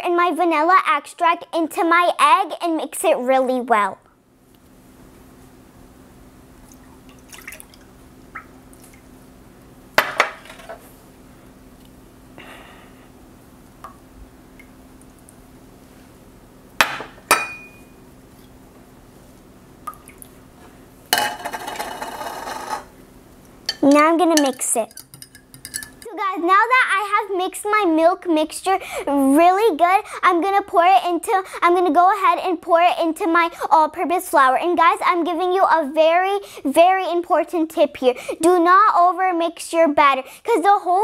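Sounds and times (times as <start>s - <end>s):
glass clinks: 17.3s - 18.0s, 24.4s - 26.0s
liquid pouring into glass bowl: 24.4s - 26.1s.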